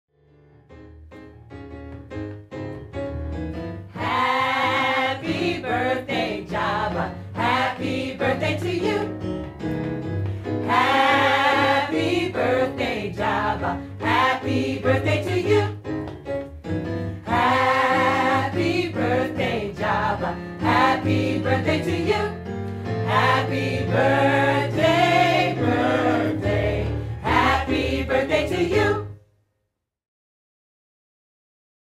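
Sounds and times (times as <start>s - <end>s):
gospel choir singing in harmony: 3.9s - 9.4s, 10.3s - 15.9s, 16.9s - 29.2s.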